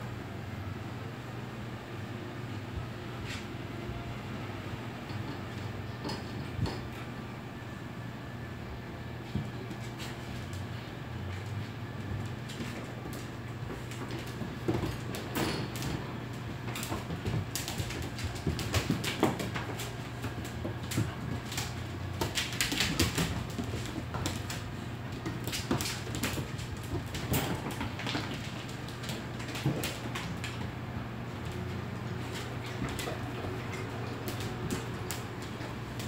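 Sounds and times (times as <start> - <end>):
dogs scuffling and scraping: 9.2 - 36.0
dog claws clicking on tile: 12.5 - 30.7.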